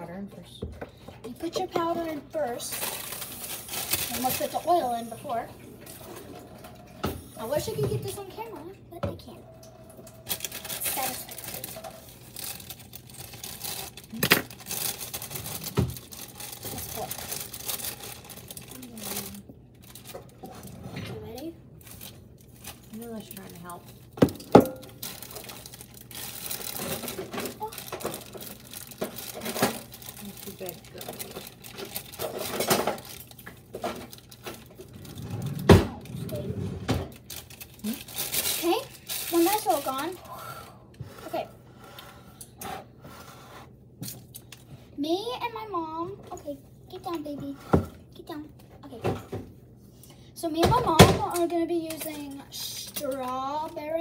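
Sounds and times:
plastic bag crinkling: 2.0s - 6.1s, 9.8s - 20.7s, 21.8s - 36.4s, 37.1s - 40.2s.

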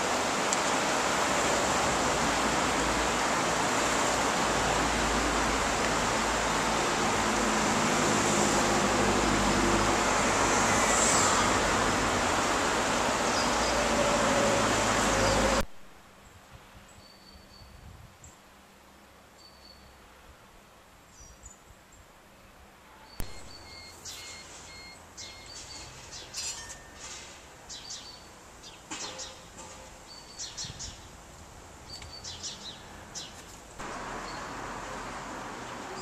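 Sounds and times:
loud rushing noise: 0.0s - 15.6s
outdoor ambience: 0.0s - 36.0s
small birds chirping: 23.1s - 26.6s, 27.7s - 29.5s, 30.1s - 31.2s, 31.8s - 34.6s.

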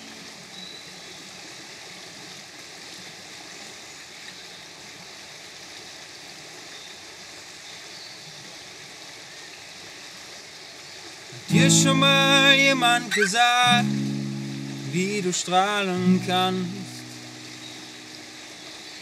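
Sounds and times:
river rushing over rocks: 11.4s - 19.0s.

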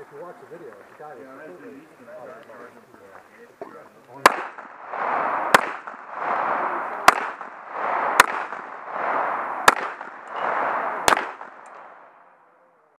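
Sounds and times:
gunshots: 4.2s - 12.2s
rushing noise: 4.7s - 12.2s.

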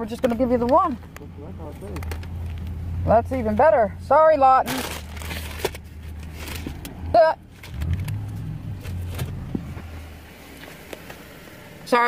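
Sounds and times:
car engine idling: 0.0s - 12.0s.

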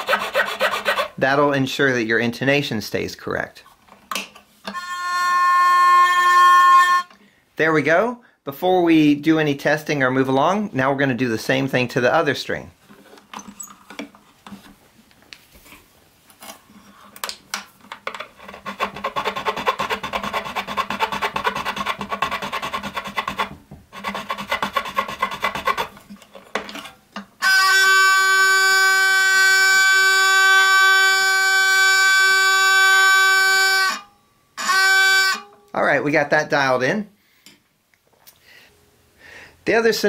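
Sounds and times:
file rasping on wooden bridge: 0.0s - 1.2s, 18.4s - 26.0s
hurdy-gurdy string steady note: 4.7s - 7.2s, 27.4s - 36.0s.

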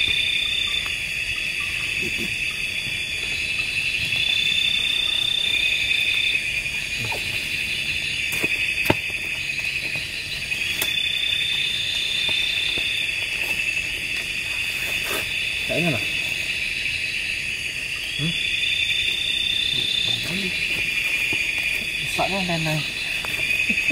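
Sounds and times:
high insect call: 0.0s - 23.9s
night insects trilling: 0.0s - 23.9s
tent clicks: 8.2s - 16.4s, 19.2s - 23.9s.

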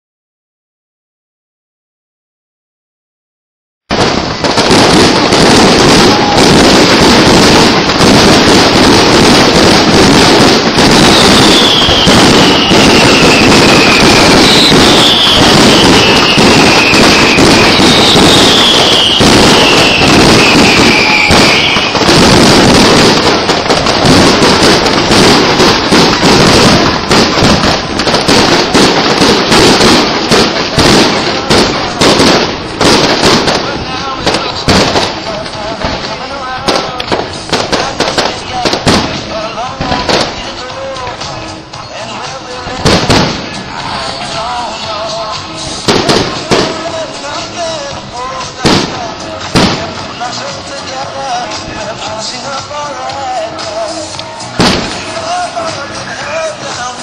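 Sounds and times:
falling firework whistles: 3.9s - 33.4s
fireworks bangs and crackling: 3.9s - 57.0s.

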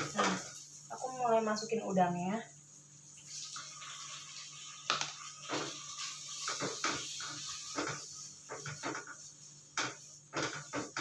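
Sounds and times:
wooden spatula scraping a pan: 0.0s - 0.7s, 5.4s - 11.0s
shrimp sizzling in hot oil: 0.0s - 11.0s.

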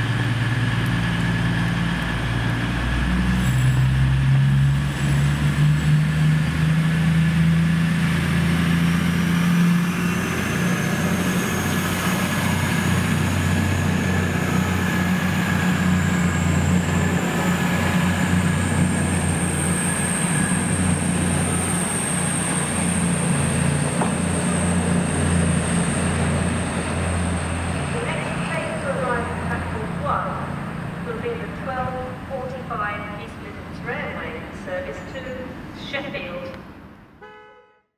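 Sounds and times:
diesel train engine drone: 0.0s - 37.5s.

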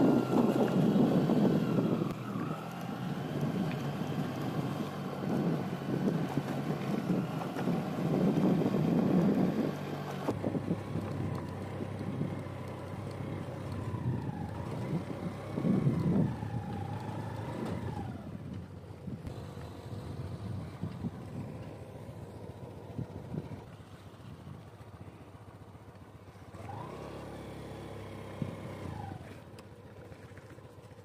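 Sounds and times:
wind buffeting microphone: 0.0s - 24.7s
vehicle engine running: 0.0s - 31.0s.

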